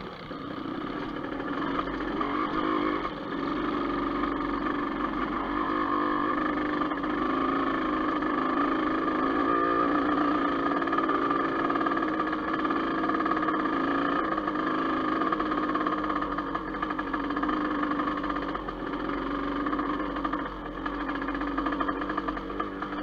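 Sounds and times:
dirt bike engine running: 0.0s - 23.0s.

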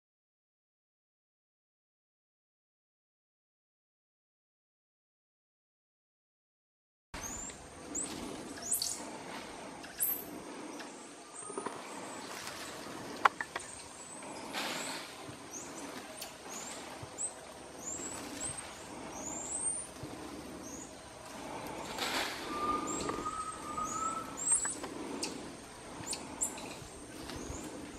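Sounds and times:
monkeys chirping: 7.2s - 9.1s, 15.5s - 27.9s
foliage rustling: 7.2s - 27.9s.

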